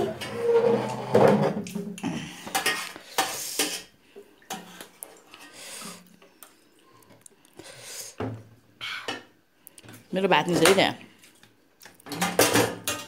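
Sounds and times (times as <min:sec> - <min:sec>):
spoons clinking on steel plates: 0:12.1 - 0:13.0.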